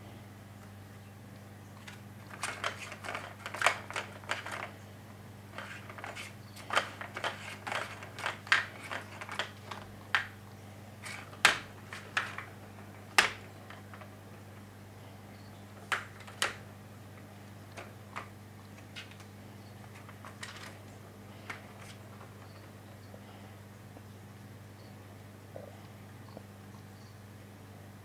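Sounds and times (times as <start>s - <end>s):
ball rolling in plastic track: 1.9s - 4.7s, 5.6s - 10.3s, 11.0s - 14.2s.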